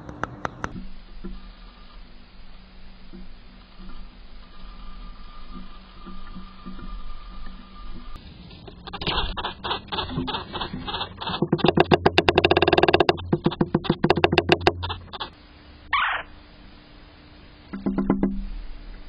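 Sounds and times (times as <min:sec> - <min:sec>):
woodpecker drumming on wood: 0:00.0 - 0:15.3, 0:17.7 - 0:18.6
woodpecker calling: 0:08.9 - 0:15.3, 0:15.9 - 0:16.3.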